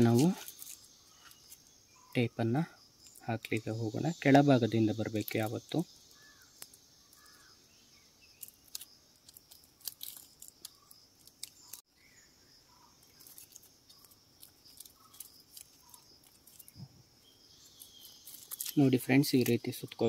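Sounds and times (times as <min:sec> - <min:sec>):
tape crinkling and clicking: 0:00.0 - 0:01.7, 0:05.2 - 0:07.5, 0:08.4 - 0:11.9, 0:13.0 - 0:16.9, 0:17.6 - 0:20.0
bird chirps: 0:00.0 - 0:20.0
high insect drone: 0:00.0 - 0:20.0.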